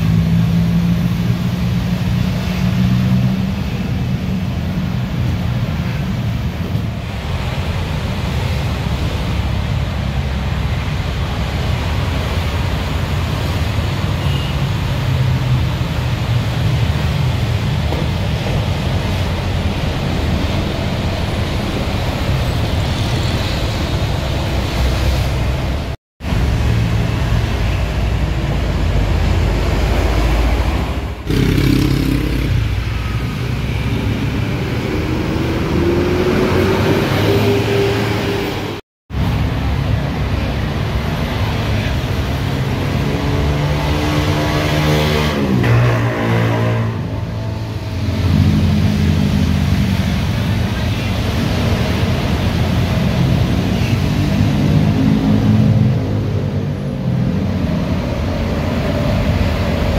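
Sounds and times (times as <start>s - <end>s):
bus engine hum: 0.0s - 43.3s
motorcycles and cars passing: 0.0s - 59.9s
bus engine accelerating: 16.5s - 59.9s.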